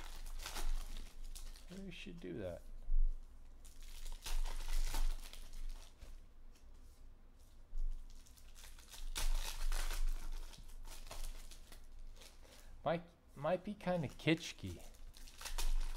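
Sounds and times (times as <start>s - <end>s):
wrappers tearing and crinkling: 0.0s - 2.6s, 3.6s - 6.2s, 7.9s - 12.8s, 13.8s - 15.9s.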